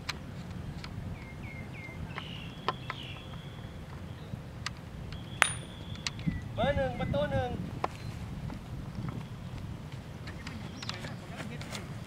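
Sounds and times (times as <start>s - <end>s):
wind rumble on microphone: 0.0s - 12.0s
bird chirps: 5.2s - 7.1s
stick striking ball: 5.4s - 6.0s.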